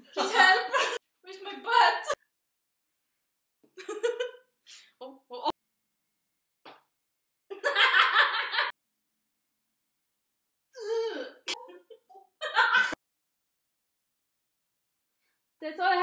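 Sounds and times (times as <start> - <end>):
people laughing: 7.5 - 8.7, 11.6 - 13.0.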